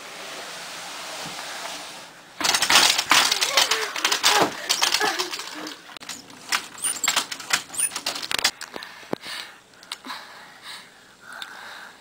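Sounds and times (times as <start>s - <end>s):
rustling and shuffling: 0.4s - 8.7s
short high squeaks: 6.7s - 8.2s.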